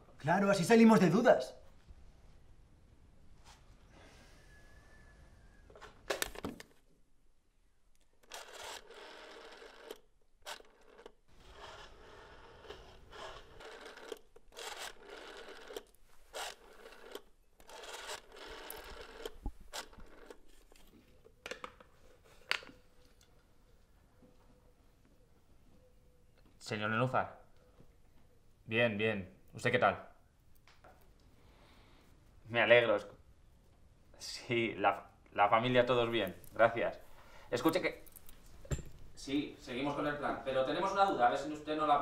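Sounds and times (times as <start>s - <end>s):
rotary dial whirring: 8.2s - 20.8s.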